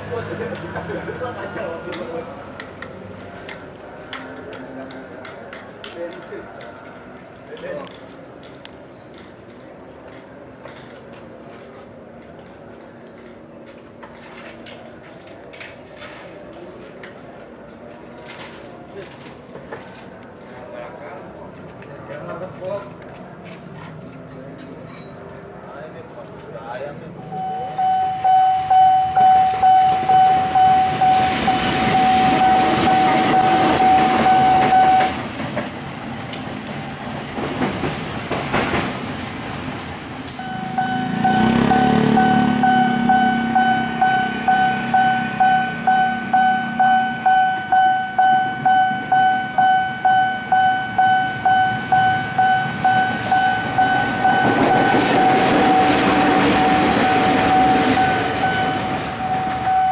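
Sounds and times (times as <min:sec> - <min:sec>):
diesel locomotive passing: 0:00.0 - 0:59.9
level-crossing warning bell: 0:27.2 - 0:35.4, 0:40.2 - 0:59.9
motorcycle engine passing: 0:40.5 - 0:45.3.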